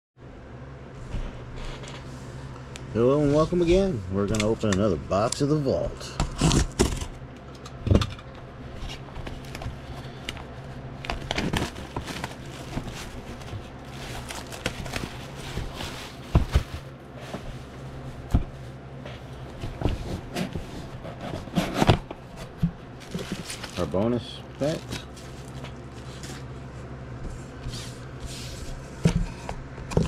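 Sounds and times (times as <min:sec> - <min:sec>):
steady low hum: 0:00.2 - 0:30.0
shrink-wrap crinkling and rustling: 0:08.7 - 0:26.6.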